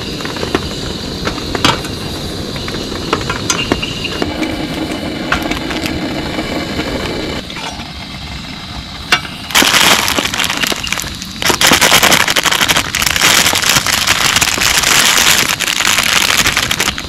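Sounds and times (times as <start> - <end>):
heavy rain drumming on tent: 9.5 - 17.0.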